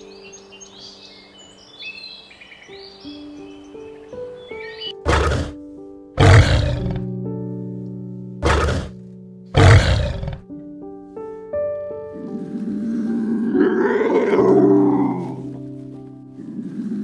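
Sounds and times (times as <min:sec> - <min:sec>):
soft piano music: 0:00.0 - 0:17.0
lion roaring: 0:05.0 - 0:05.6, 0:06.2 - 0:07.1, 0:08.4 - 0:09.0, 0:09.6 - 0:10.5, 0:12.2 - 0:15.6.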